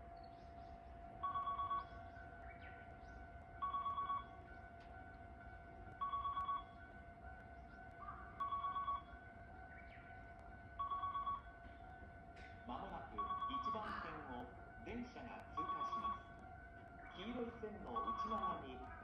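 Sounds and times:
electronic warning ringer: 1.2s - 2.0s, 3.6s - 4.5s, 6.0s - 6.8s, 8.3s - 9.2s, 10.8s - 11.6s, 12.8s - 14.5s, 15.4s - 16.5s, 17.1s - 19.0s.

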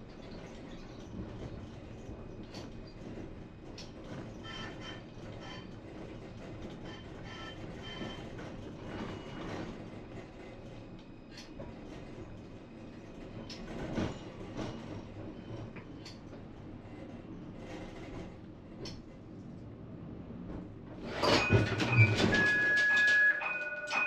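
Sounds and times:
tram rumbling on rails: 0.0s - 24.0s
wheels clicking on track: 21.1s - 24.0s.

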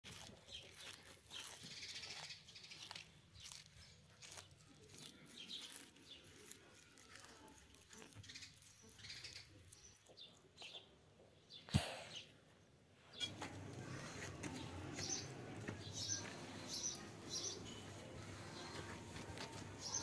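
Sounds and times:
tortoise tearing a leaf: 0.0s - 10.1s, 13.2s - 20.0s
birds chirping: 13.1s - 20.0s.

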